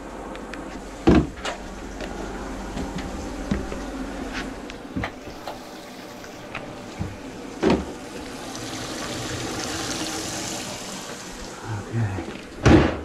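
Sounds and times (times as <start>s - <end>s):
knocks and thump: 1.0s - 1.6s, 7.0s - 8.0s, 12.6s - 13.0s
faucet running into steel sink: 8.0s - 11.6s.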